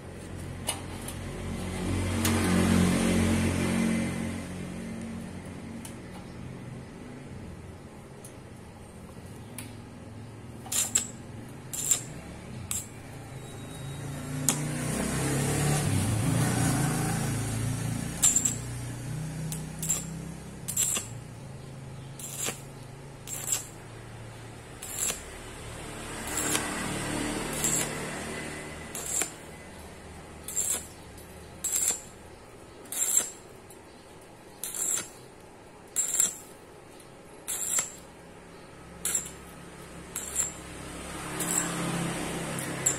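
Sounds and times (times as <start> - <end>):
welding arc bursts: 10.6 - 13.0, 16.5 - 29.6, 30.4 - 31.0, 31.6 - 33.5, 34.6 - 35.3, 35.9 - 36.6, 37.4 - 38.2, 39.0 - 42.9.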